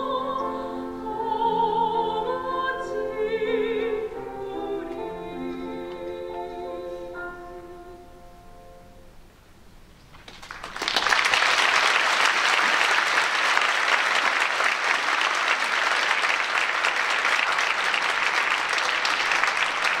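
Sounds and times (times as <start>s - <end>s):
audience applauding: 10.2s - 20.0s.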